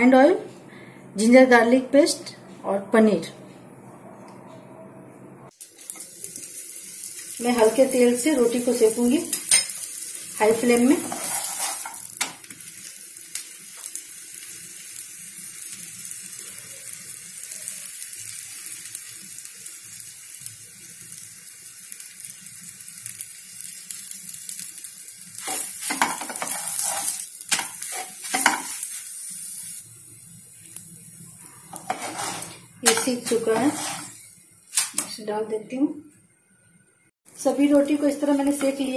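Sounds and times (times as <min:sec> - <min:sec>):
flatbread sizzling in a pan: 0:05.5 - 0:35.3, 0:37.3 - 0:38.9
spatula scraping and knocking pan: 0:10.5 - 0:12.3, 0:25.4 - 0:28.8, 0:31.7 - 0:34.2.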